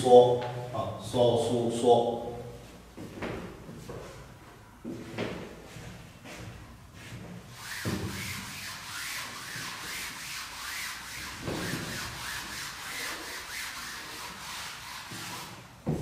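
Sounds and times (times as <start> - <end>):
eraser rubbing on chalkboard: 7.5 - 15.7.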